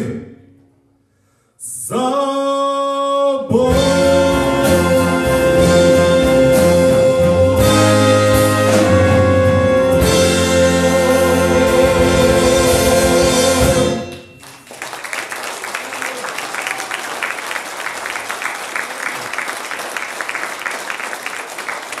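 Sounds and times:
audience applause: 14.4s - 22.0s.

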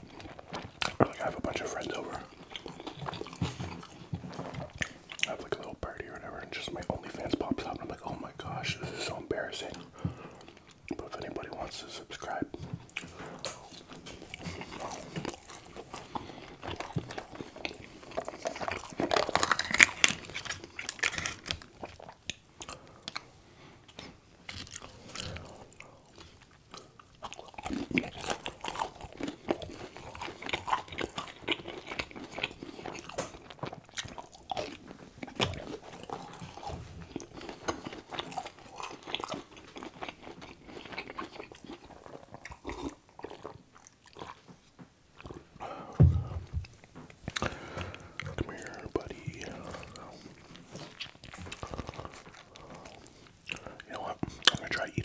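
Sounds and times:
wet chewing: 0.0s - 55.0s
crunchy bites of food: 12.9s - 23.3s, 23.9s - 44.4s.

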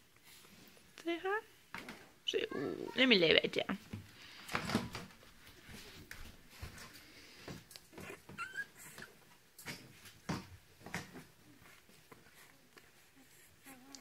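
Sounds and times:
puppies whimpering and squeaking: 7.9s - 9.1s.

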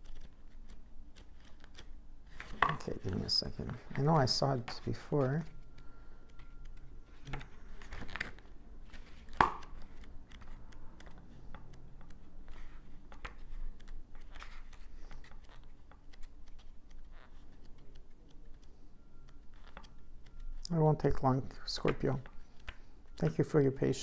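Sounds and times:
paper pages rustling: 0.0s - 18.8s.

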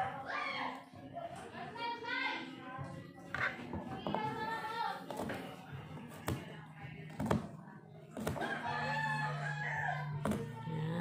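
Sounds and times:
rooster crowing: 8.4s - 10.2s.

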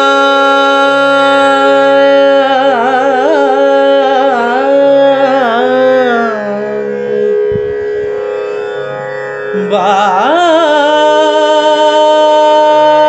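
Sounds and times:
tanpura drone: 0.0s - 13.0s
person singing wordless phrase: 0.2s - 6.9s, 9.6s - 13.0s.

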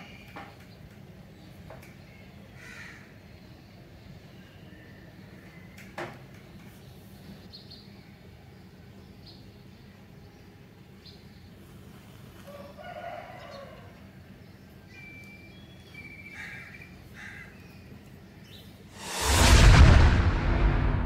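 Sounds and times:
boom and whoosh sound effect: 19.0s - 21.0s.

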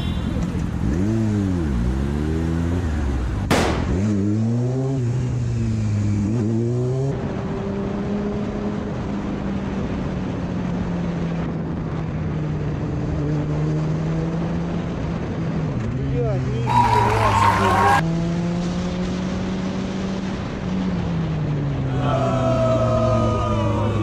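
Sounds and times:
wind and road noise: 0.0s - 24.0s
motorcycle engine revving: 0.5s - 8.8s.

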